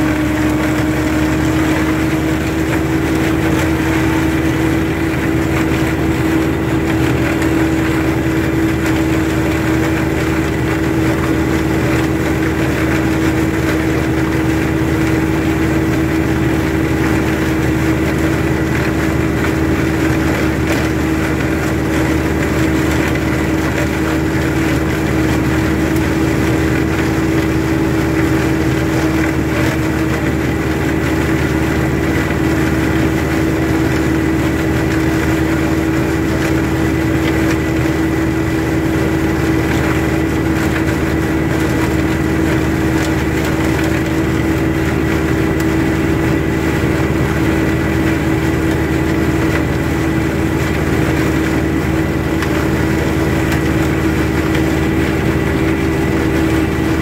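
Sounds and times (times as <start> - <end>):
flail mower cutting grass: 0.0 - 57.0
tractor engine droning: 0.0 - 57.0.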